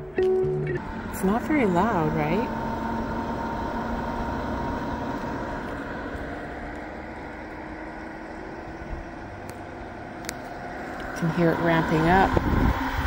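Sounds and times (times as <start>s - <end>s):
air conditioner fan whirring: 0.0s - 13.0s.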